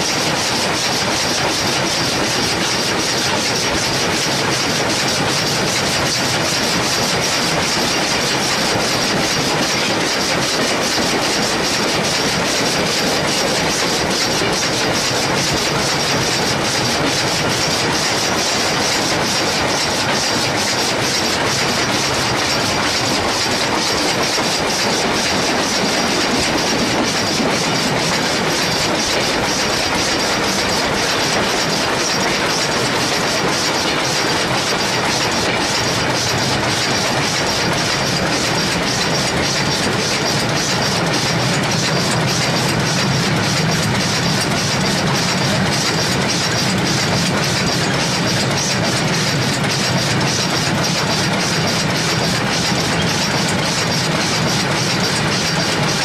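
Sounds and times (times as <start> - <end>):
train wheels clattering on rails: 0.0 - 56.0
rapid fine clicking: 0.2 - 56.0.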